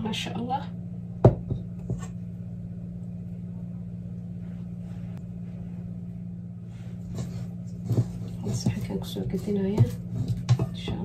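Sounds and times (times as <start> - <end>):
low background hum: 0.0 - 11.0
spatula scraping metal bowl: 7.0 - 11.0.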